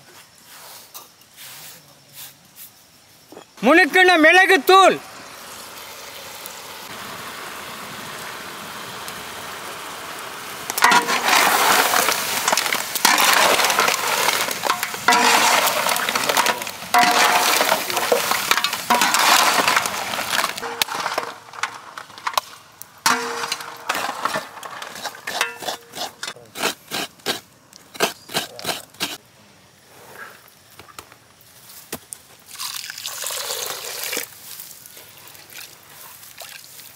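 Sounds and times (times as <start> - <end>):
food crackling and sizzling: 3.6 - 29.2, 30.3 - 36.9
pot hissing: 4.4 - 29.2.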